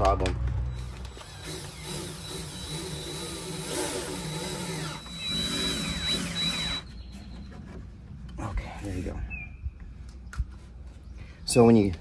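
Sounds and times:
cordless drill boring holes: 0.7 - 7.1.

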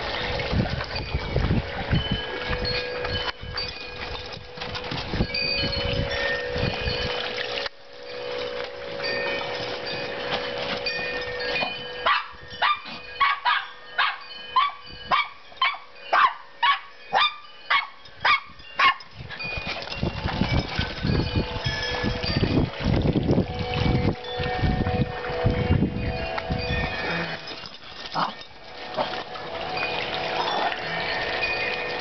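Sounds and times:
wind rumble on microphone: 0.0 - 7.7, 8.4 - 32.0
small dog barking: 12.1 - 19.0.

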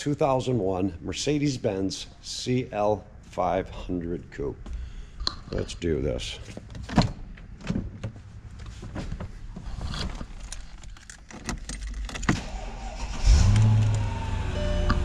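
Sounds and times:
car engine starting and idling: 11.0 - 15.0.

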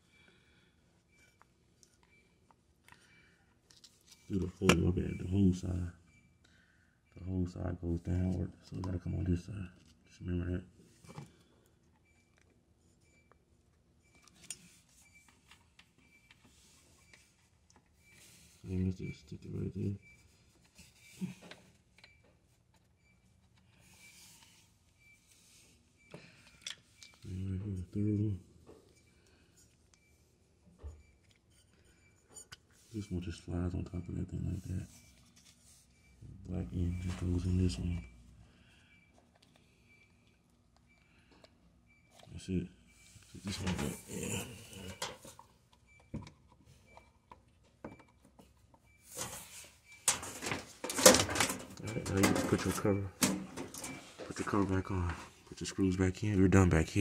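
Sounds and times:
parts clicking and knocking: 44.9 - 49.4, 50.0 - 54.4.

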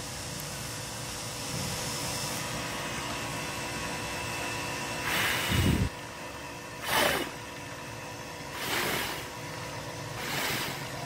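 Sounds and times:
person blowing puffs of breath: 5.0 - 5.9, 6.8 - 7.4, 8.5 - 9.4, 10.1 - 11.0
wind buffeting microphone: 5.4 - 6.0.

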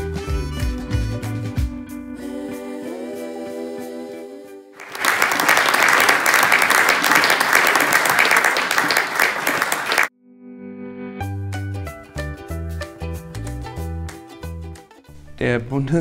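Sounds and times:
background music with held notes: 0.0 - 4.8, 10.3 - 16.0
audience clapping: 4.8 - 10.1.

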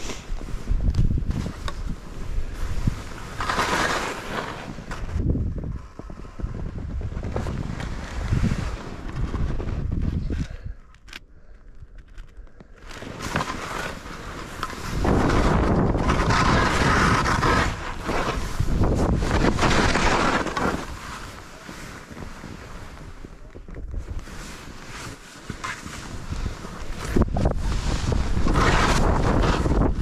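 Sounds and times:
wind buffeting microphone: 0.0 - 3.4, 4.6 - 10.8, 14.6 - 21.0, 26.1 - 30.0.

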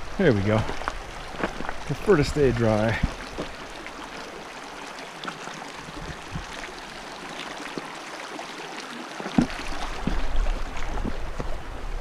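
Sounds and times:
creek babbling over rocks: 0.0 - 12.0
light footsteps: 0.6 - 3.6.

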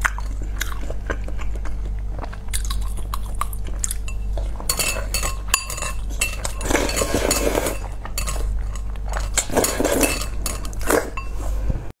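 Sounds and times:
slurping noodles: 6.5 - 7.9.

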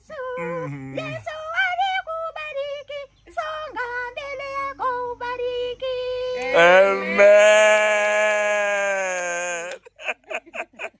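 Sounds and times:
woman singing soprano: 0.0 - 7.2
lower voice: 0.4 - 1.2, 6.4 - 9.8.

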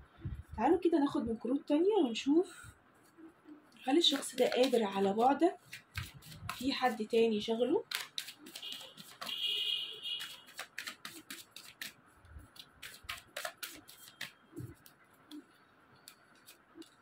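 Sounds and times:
cards being shuffled: 3.8 - 7.0, 7.8 - 9.4, 10.2 - 15.4, 16.0 - 17.0.

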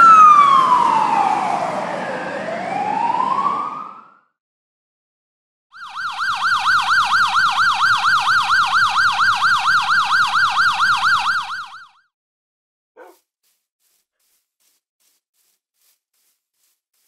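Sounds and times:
police siren yelping: 0.0 - 4.2, 5.8 - 12.0.

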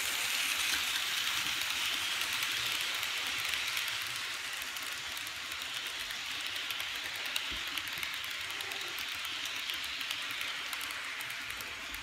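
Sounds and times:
model train hissing on track: 0.0 - 12.0
light irregular clicking: 1.6 - 12.0.

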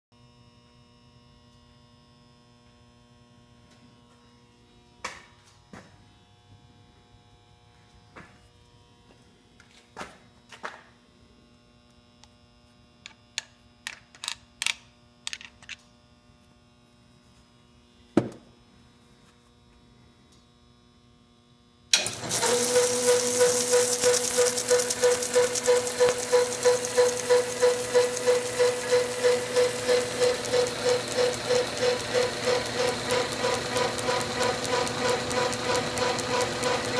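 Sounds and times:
lathe running with steady whine: 21.9 - 36.9.

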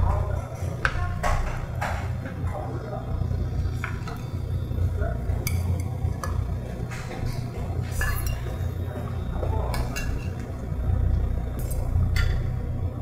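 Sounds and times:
steady low hum: 0.0 - 13.0
metal spoon clinking on bowls: 7.9 - 8.6, 9.7 - 10.4.

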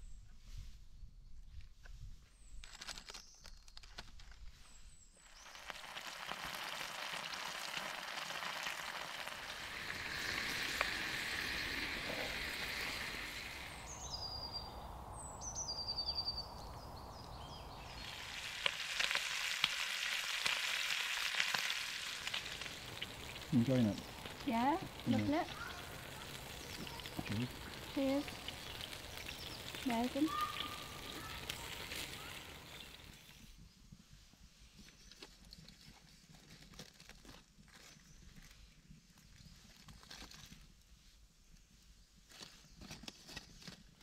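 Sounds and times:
meat sizzling in a frying pan: 5.2 - 14.1, 17.8 - 33.4
birds chirping: 9.5 - 19.2, 21.0 - 33.6.

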